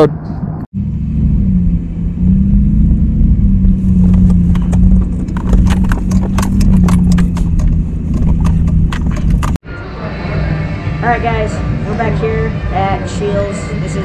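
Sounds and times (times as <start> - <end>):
truck engine running: 0.8 - 9.6
rattles and knocks in truck cab: 4.0 - 9.6.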